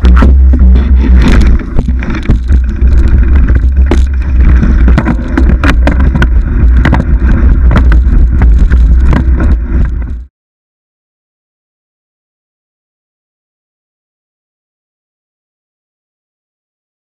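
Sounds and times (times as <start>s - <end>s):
mountain bike rattling on trail: 0.0s - 10.3s
wind rumble on microphone: 0.0s - 10.3s.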